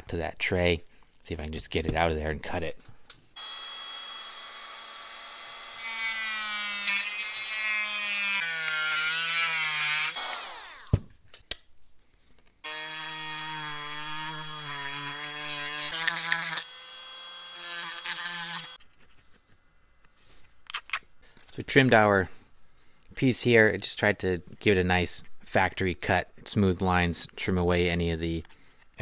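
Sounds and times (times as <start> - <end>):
rotary tool cutting and grinding: 3.4 - 11.0, 12.7 - 18.8.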